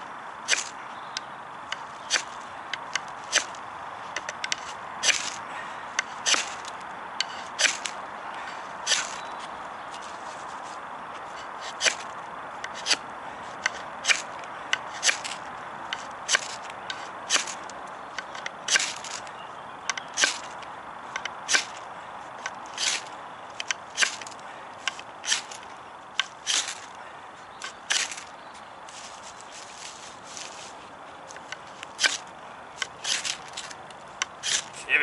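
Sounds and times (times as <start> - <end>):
ferrocerium rod rasping on knife: 6.0 - 7.9, 8.8 - 9.3, 11.2 - 13.0, 31.5 - 34.8.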